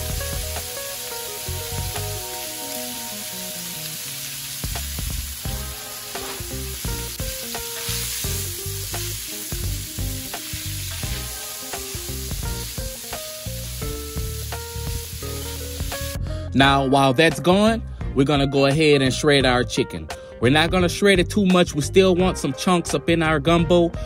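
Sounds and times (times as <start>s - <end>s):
sausage sizzling in frying pan: 0.0s - 16.2s
background music: 0.0s - 24.0s.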